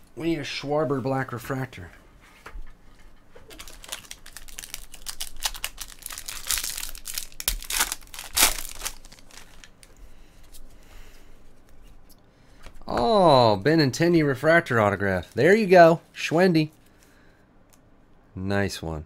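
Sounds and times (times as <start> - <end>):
foil wrapper tearing and crinkling: 3.5 - 9.9.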